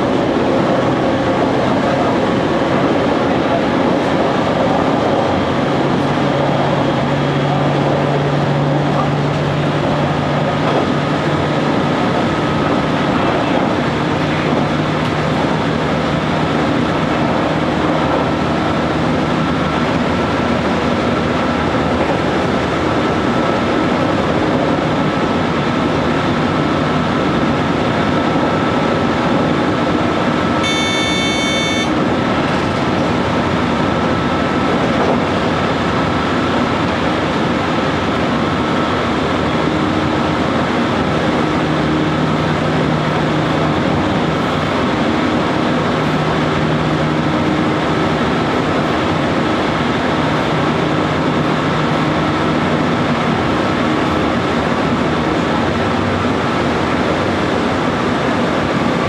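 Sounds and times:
train rumble and rail noise: 0.0 - 59.0
brief high-pitched tone: 30.6 - 32.0.

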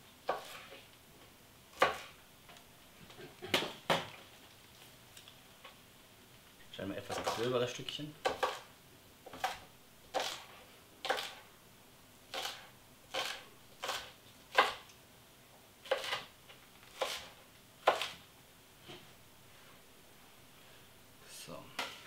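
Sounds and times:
knife chopping on wooden board: 1.8 - 2.1, 8.2 - 8.7, 9.3 - 11.4, 12.3 - 14.9, 15.8 - 16.3, 16.9 - 18.2.

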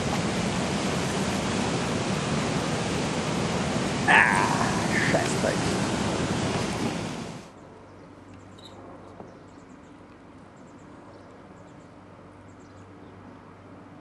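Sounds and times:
loud rushing noise: 0.0 - 7.5.

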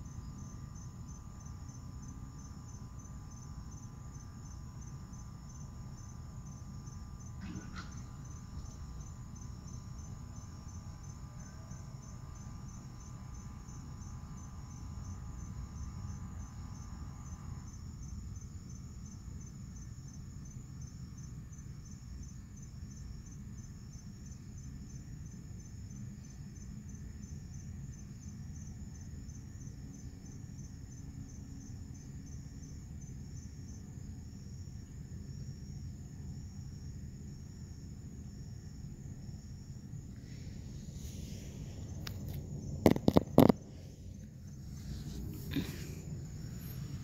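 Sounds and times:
crickets chirping: 0.0 - 47.0
low background rumble: 32.5 - 47.0.

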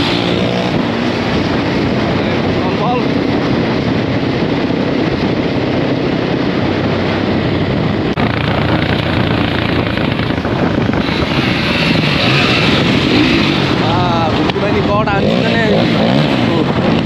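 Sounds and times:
motorcycle engines running: 0.0 - 17.0
wind rush on microphone: 0.0 - 17.0.

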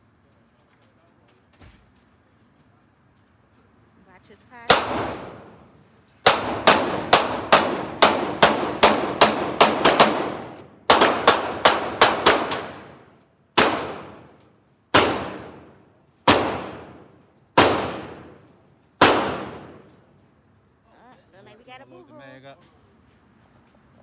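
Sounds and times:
pistol gunshots echoing: 4.7 - 19.9.

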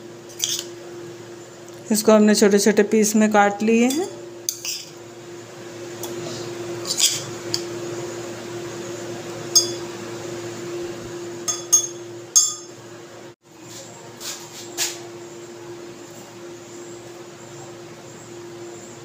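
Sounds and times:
steady low hum: 0.0 - 19.0
spoon clinking on glass: 9.6 - 9.9, 11.5 - 12.8.

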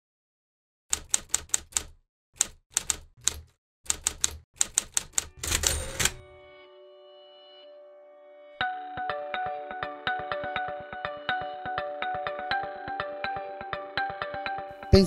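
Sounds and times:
typewriter keys clacking: 0.9 - 6.2
typewriter mechanism rattling: 0.9 - 6.2.

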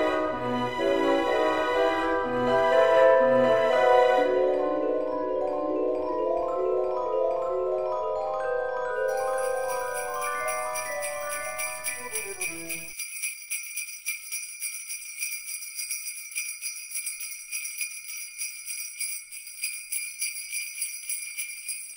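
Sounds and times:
falling bell-like notes: 4.6 - 12.9
jingle bells shaken: 9.1 - 21.9.

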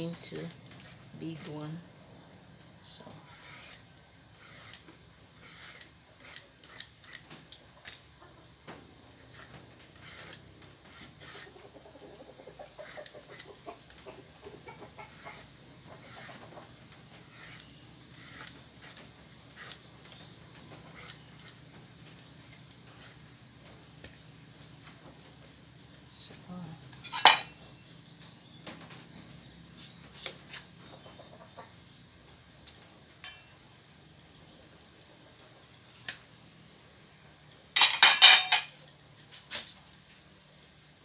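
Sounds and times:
peeler rasping on papaya skin: 0.1 - 1.9, 3.1 - 8.0, 9.2 - 11.6, 12.6 - 13.6, 14.8 - 23.3.

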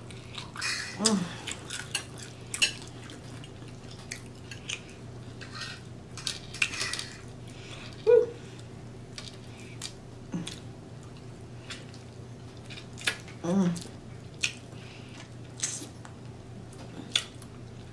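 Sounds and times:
chewing: 0.0 - 17.9
lip smacks: 14.4 - 14.6, 17.1 - 17.5.

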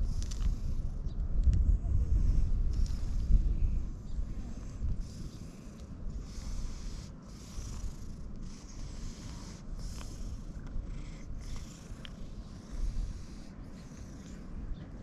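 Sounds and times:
cat purring: 4.4 - 15.0
cat snorting through nose: 5.0 - 14.7.

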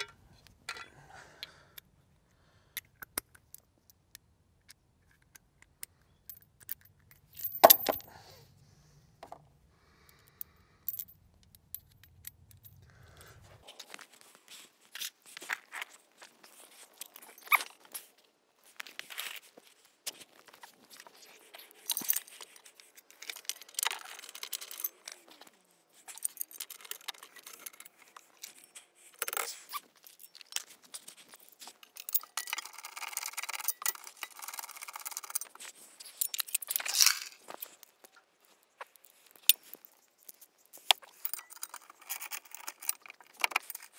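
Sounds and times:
metal tools clinking and scraping: 0.0 - 1.0, 7.4 - 8.2, 20.2 - 38.2, 38.9 - 43.9.

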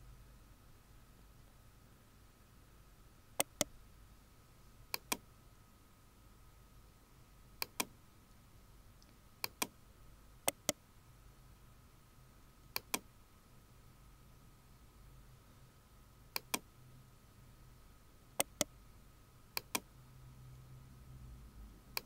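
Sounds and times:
room hum: 0.0 - 22.0
computer mouse clicking: 3.4 - 3.7, 4.9 - 5.2, 7.6 - 7.9, 9.0 - 9.8, 10.5 - 10.8, 12.6 - 13.1, 16.4 - 16.7, 18.4 - 18.7, 19.6 - 19.9.

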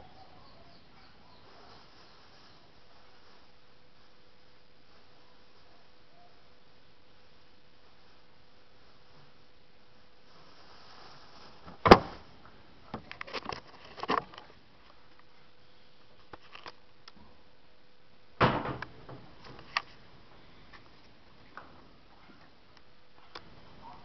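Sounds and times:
heavy thump with rattle: 11.8 - 12.2, 18.4 - 19.3.

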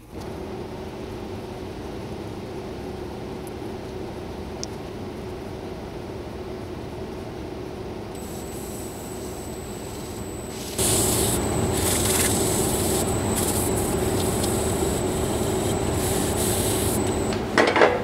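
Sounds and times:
lathe motor hum with whine: 8.2 - 17.7.

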